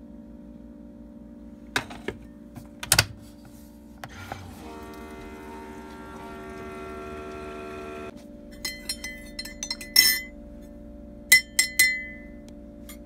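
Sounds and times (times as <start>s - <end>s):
coffee maker humming: 4.0s - 8.2s
spoon clinking in ceramic mug: 8.6s - 10.3s, 11.3s - 12.3s.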